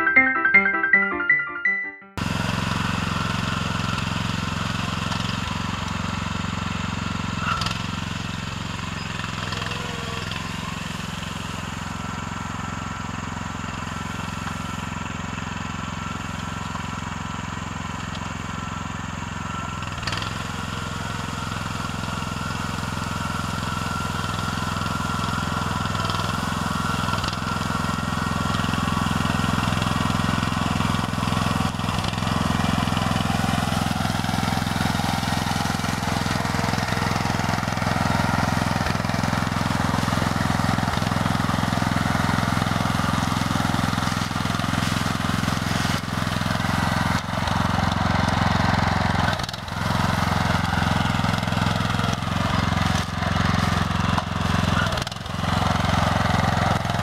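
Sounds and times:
tractor engine running under load: 2.2s - 57.0s.

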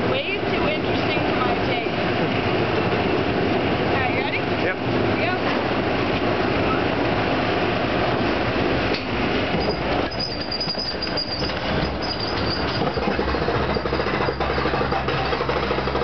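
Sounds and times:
roller coaster rumbling on track: 0.0s - 16.0s
lift hill chain clacking: 8.9s - 16.0s
wheel squeal: 9.5s - 16.0s.

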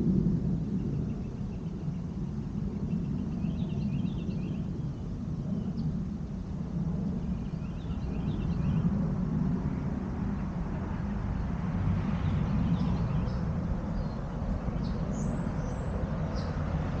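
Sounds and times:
steady low rumble: 0.0s - 17.0s
faint bird chirps: 7.2s - 8.9s.

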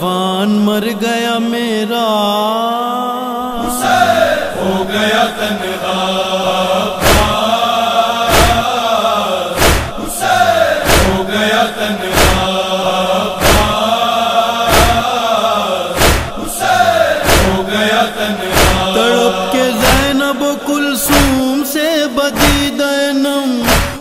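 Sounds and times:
group chanting: 3.4s - 22.9s, 23.5s - 24.0s
open hands striking chest: 7.0s - 7.4s, 8.3s - 8.7s, 9.6s - 10.1s, 12.1s - 12.5s, 13.4s - 13.8s, 14.7s - 15.0s, 16.0s - 16.5s, 23.7s - 24.0s.

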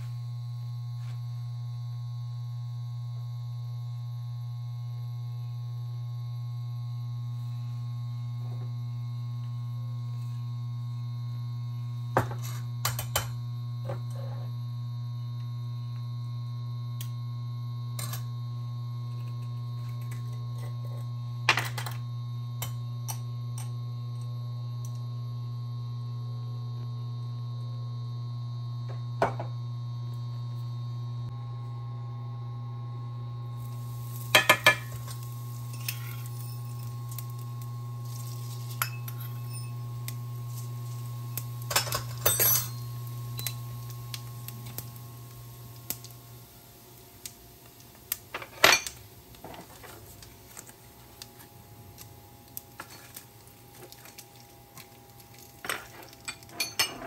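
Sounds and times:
steady low hum: 0.0s - 57.0s
metal spoons and bowls clinking: 41.7s - 43.6s, 55.6s - 57.0s.

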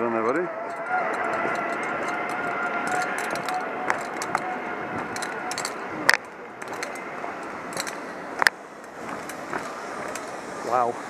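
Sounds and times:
zip line trolley rushing hiss: 6.6s - 11.0s.

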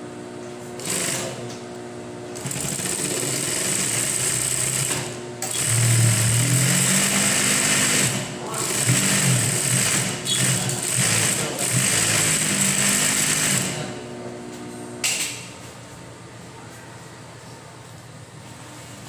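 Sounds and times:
sewing machine running fast: 0.8s - 1.4s, 2.4s - 14.0s.

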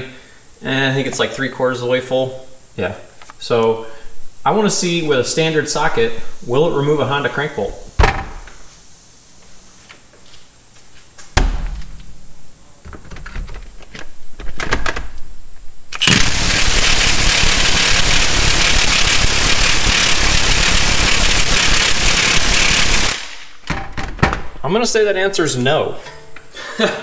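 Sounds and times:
impact wrench hammering: 16.0s - 24.0s.

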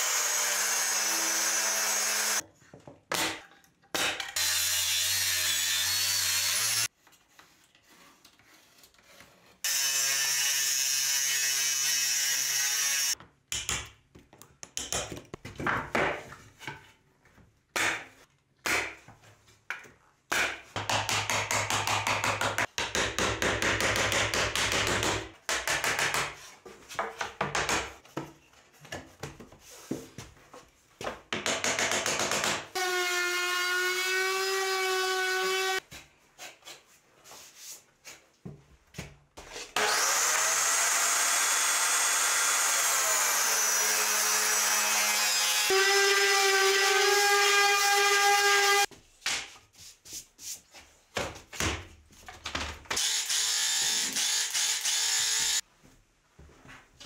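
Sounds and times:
steady power tool noise: 0.0s - 2.4s, 39.8s - 48.9s, 53.0s - 55.6s.

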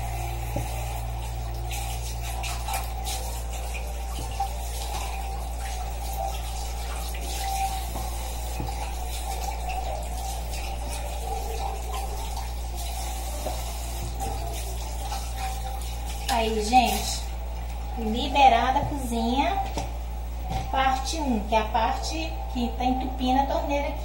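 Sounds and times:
tap water running into sink: 0.0s - 18.2s.

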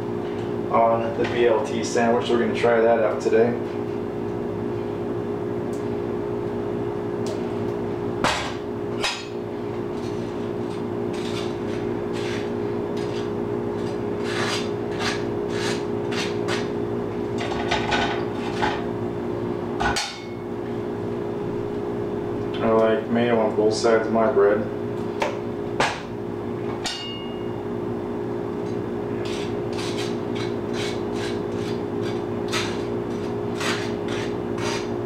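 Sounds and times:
steady hum: 0.0s - 35.0s
knife scraping toast: 11.1s - 16.7s, 29.2s - 34.9s.

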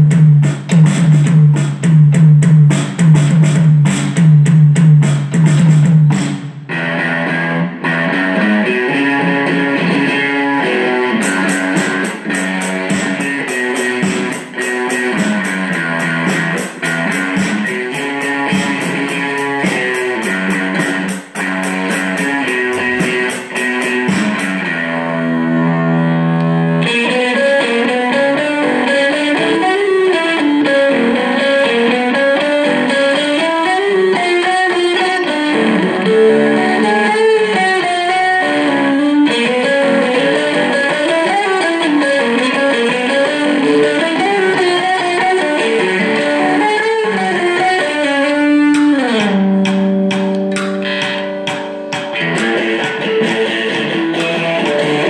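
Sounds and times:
electric guitar: 0.0s - 55.0s
high ticking beat: 11.0s - 24.8s.

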